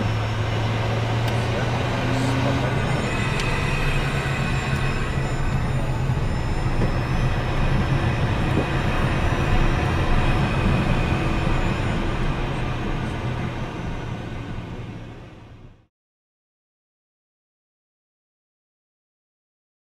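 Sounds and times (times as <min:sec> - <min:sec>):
jet engines whining: 0:00.0 - 0:15.8
wheels rumbling on taxiway: 0:00.0 - 0:15.9.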